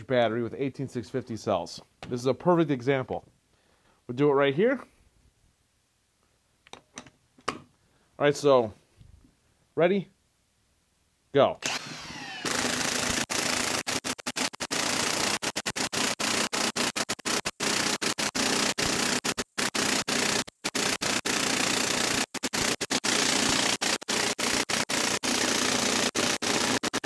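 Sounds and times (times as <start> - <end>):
impact wrench hammering: 11.6 - 27.0.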